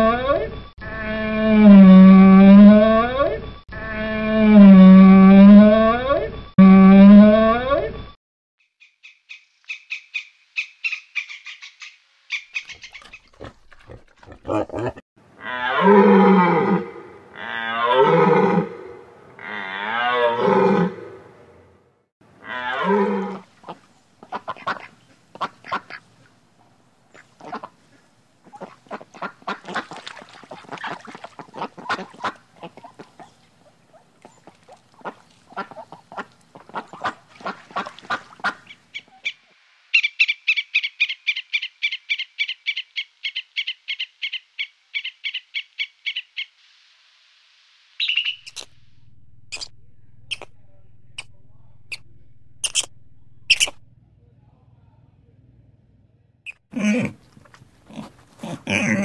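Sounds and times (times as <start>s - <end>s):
low drawn-out animal calls: 0.0s - 7.9s, 12.6s - 21.4s, 48.0s - 54.0s
ducks quacking: 12.6s - 15.0s, 23.6s - 26.3s, 27.1s - 39.4s, 50.3s - 50.5s
rapid high chirps: 48.0s - 53.8s.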